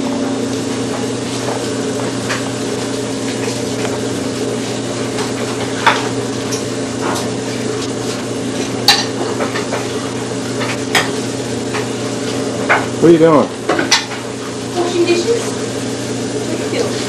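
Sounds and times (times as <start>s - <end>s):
dishes clinking: 8.8s - 9.9s.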